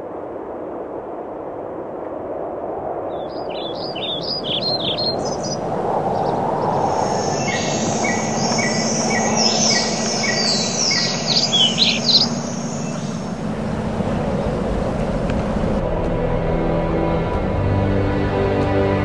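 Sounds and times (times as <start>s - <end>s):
birds calling with falling whistles: 3.1s - 15.8s
steady high insect buzz: 3.5s - 15.8s
low background hum: 7.2s - 15.8s.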